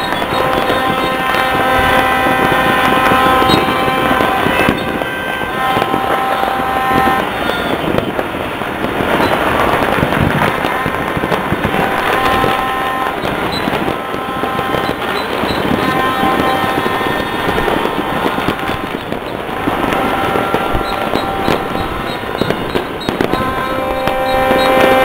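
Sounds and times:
fireworks crackling and popping: 0:00.0 - 0:25.0
steady pitched tones: 0:00.0 - 0:25.0.

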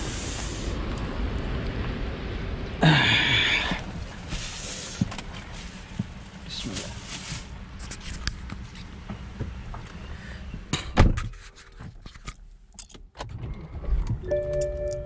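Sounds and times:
rain outside: 0:00.0 - 0:07.6.

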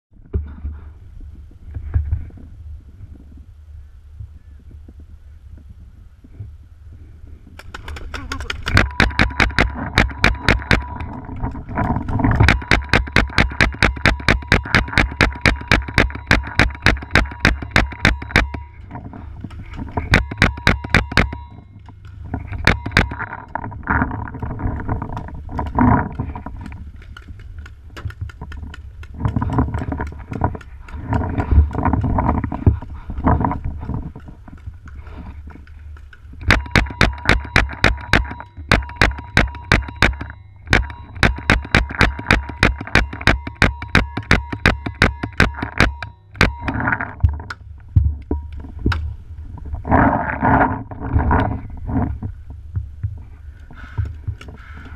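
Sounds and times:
paintball marker rapid firing: 0:07.6 - 0:11.0, 0:12.4 - 0:18.6, 0:36.5 - 0:46.5.

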